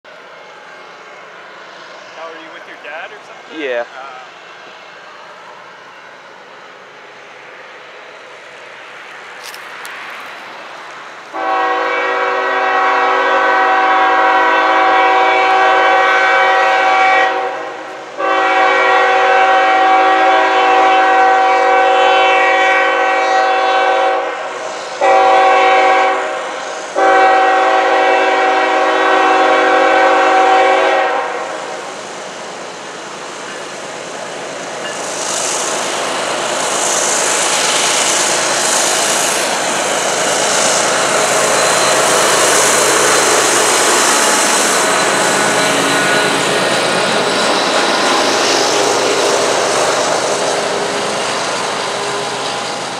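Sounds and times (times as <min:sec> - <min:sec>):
locomotive engines: 0:00.1 - 0:18.5, 0:31.6 - 0:52.9
train wheels on rails: 0:00.1 - 0:52.9
rising hiss: 0:00.4 - 0:12.6, 0:24.2 - 0:27.3, 0:31.2 - 0:52.9
locomotive air horn blasts: 0:11.3 - 0:31.6.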